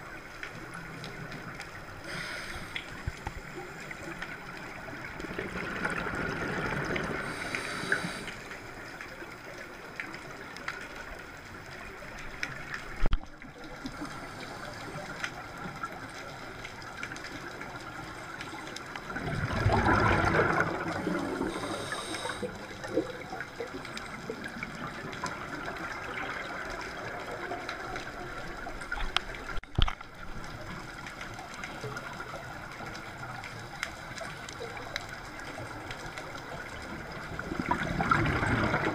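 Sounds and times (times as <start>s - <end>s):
steady watery hiss: 0.0s - 38.9s
exhaled bubbles rumbling: 2.8s - 8.3s, 15.4s - 38.9s.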